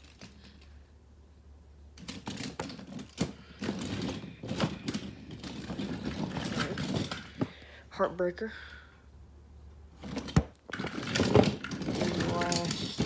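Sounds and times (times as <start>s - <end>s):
toy trucks clattering together: 2.0s - 7.6s, 10.1s - 13.0s.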